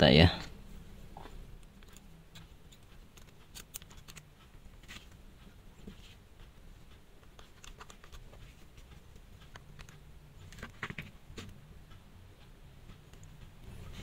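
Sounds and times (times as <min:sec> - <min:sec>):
watch ticking: 0:01.4 - 0:14.0
tweezers clicking on watch: 0:01.6 - 0:04.5.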